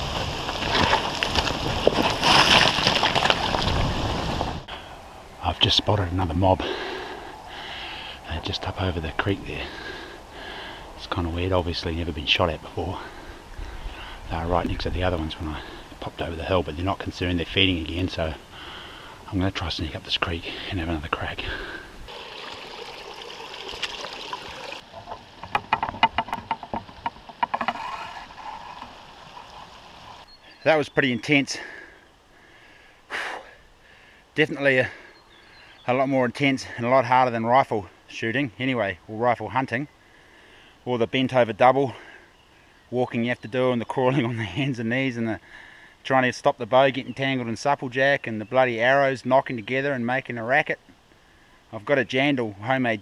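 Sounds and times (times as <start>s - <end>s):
footsteps on gravel: 0.0s - 4.6s
water trickling over stones: 22.1s - 25.5s, 26.1s - 30.3s.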